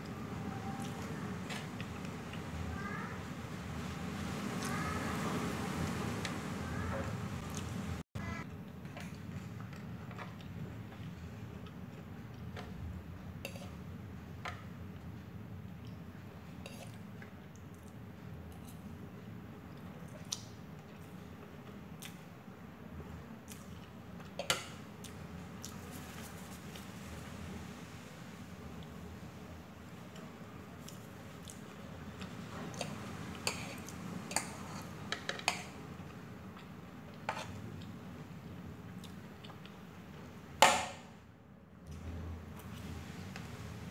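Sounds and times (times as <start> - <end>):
fork scraping a plate: 32.8 - 35.7, 37.3 - 37.6.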